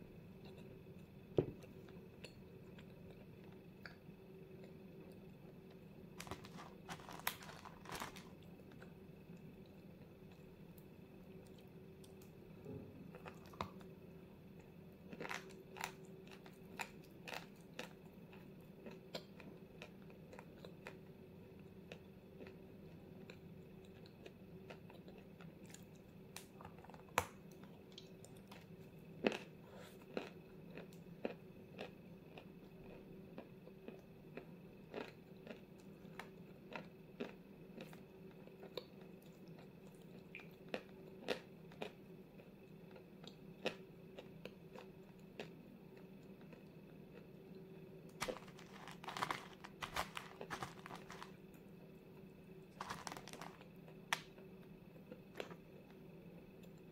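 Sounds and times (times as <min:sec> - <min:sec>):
steady low hum: 0:00.0 - 0:56.9
chalk crunching and chewing: 0:06.2 - 0:09.0, 0:14.6 - 0:21.0, 0:34.9 - 0:45.6, 0:48.1 - 0:51.4, 0:52.7 - 0:54.5.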